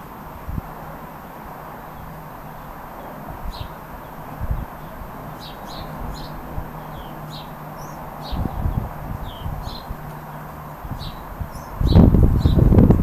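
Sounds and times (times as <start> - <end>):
wind rumbling on microphone: 0.0 - 13.0
bird chirping: 2.6 - 12.7.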